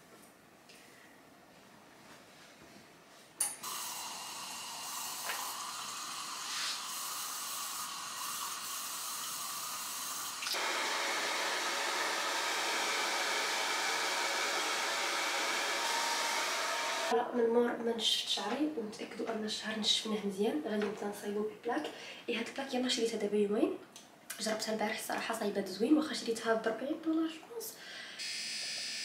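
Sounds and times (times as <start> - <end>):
hair dryer blowing: 3.6 - 17.1.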